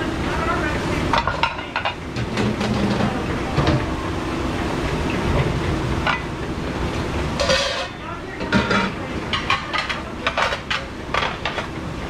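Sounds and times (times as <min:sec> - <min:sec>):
dish machine rumbling: 0:00.0 - 0:12.0
plates and trays clinking: 0:07.4 - 0:11.7.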